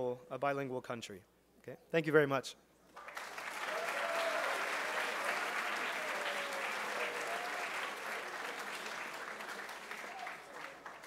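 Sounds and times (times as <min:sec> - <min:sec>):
audience applauding: 0:03.0 - 0:11.0.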